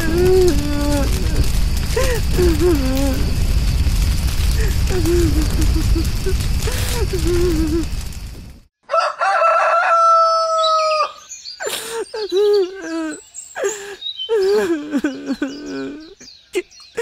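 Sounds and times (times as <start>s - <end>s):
loud rumbling noise: 0.0s - 8.7s
rooster crowing: 8.8s - 11.2s.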